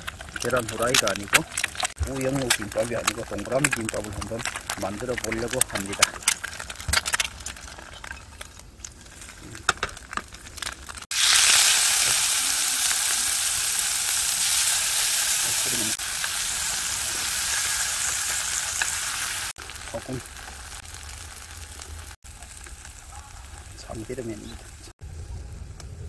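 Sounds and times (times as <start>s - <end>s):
meat sizzling in a frying pan: 9.1s - 24.9s.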